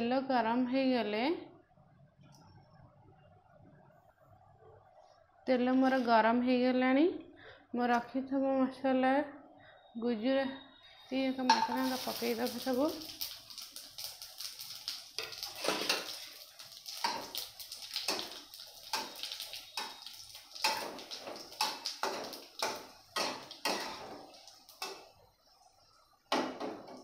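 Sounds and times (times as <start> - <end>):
spices crackling in hot oil: 11.2 - 27.0
metal spatula scraping: 15.2 - 16.2.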